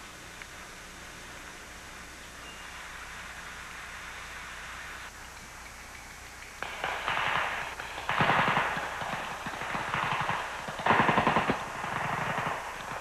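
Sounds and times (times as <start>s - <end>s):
rapid gunfire bursts: 6.6s - 13.0s.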